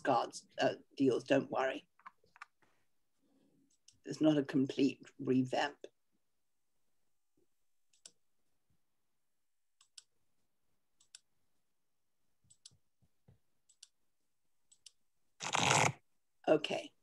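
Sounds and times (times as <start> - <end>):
computer mouse clicks: 7.9 - 8.2, 9.8 - 10.1, 11.0 - 11.3, 12.5 - 12.8, 13.7 - 14.0.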